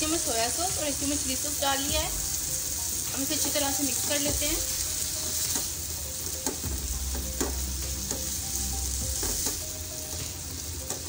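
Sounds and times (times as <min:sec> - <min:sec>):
chicken sizzling in oil: 0:00.0 - 0:11.0
spatula scraping and tapping pan: 0:05.4 - 0:05.8, 0:06.4 - 0:08.4, 0:09.2 - 0:11.0.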